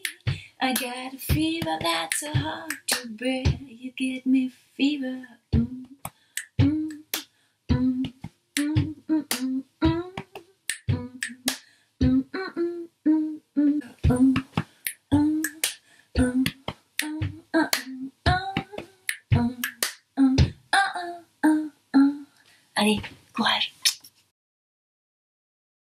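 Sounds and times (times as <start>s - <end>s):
woman singing wordless notes: 0.0s - 6.0s, 6.6s - 7.1s, 7.7s - 14.5s, 15.1s - 15.6s, 16.2s - 22.3s
finger snaps: 5.8s - 7.3s, 10.2s - 11.7s, 14.3s - 15.8s, 16.4s - 20.0s.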